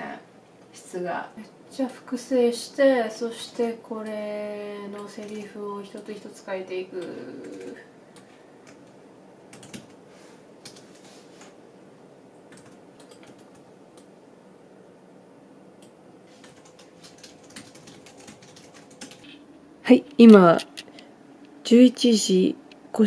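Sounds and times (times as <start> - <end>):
keyboard typing: 9.5 - 10.0, 10.6 - 11.5, 12.5 - 14.1, 15.8 - 19.4.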